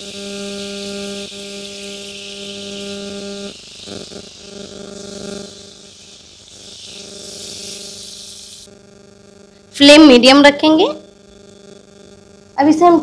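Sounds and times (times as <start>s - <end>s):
butter sizzling on a pan: 0.0s - 8.8s
electrical hum: 0.0s - 13.0s.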